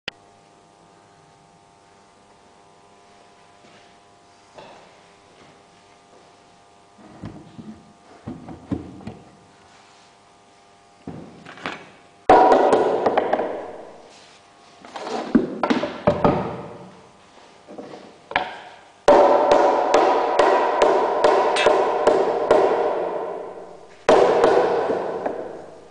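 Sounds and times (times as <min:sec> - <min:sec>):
rubber mallet striking wood: 0:12.3 - 0:14.0, 0:18.4 - 0:25.9.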